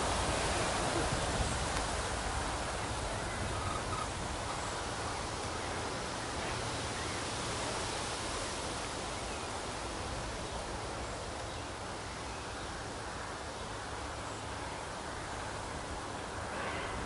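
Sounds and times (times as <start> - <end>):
wind on microphone: 0.0 - 5.1
rustling vegetation: 0.0 - 17.0.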